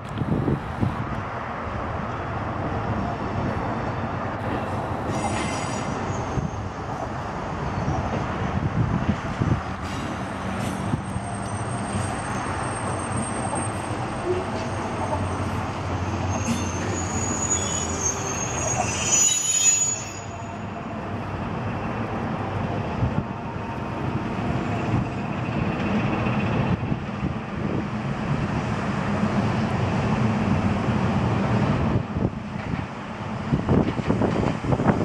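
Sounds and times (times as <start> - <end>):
train rumbling on rails: 0.0 - 35.0
high wheel squeal: 5.1 - 6.9, 11.0 - 20.9.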